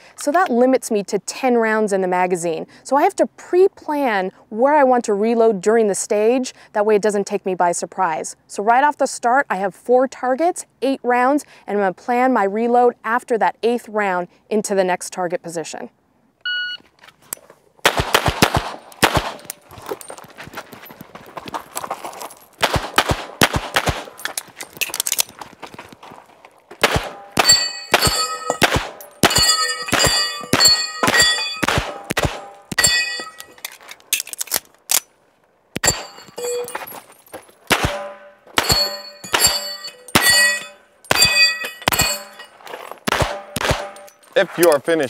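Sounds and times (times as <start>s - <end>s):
rapid pistol fire: 17.8s - 19.5s, 22.6s - 24.2s, 26.8s - 32.8s, 37.7s - 38.8s, 43.1s - 44.0s
bullets ringing on steel plates: 27.1s - 33.6s, 35.8s - 37.0s, 37.9s - 42.6s, 43.3s - 44.3s.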